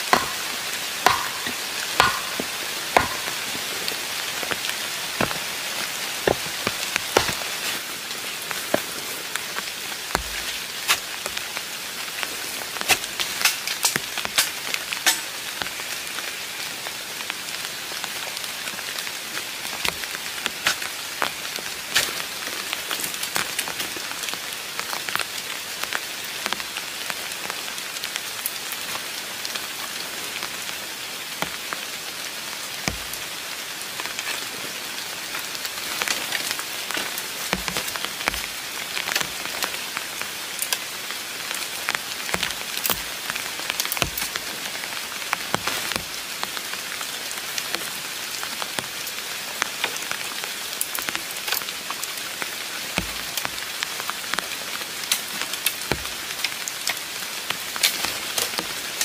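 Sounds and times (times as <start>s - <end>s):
heavy raindrops ticking: 0.0s - 15.9s
steady rain hiss: 0.0s - 59.0s.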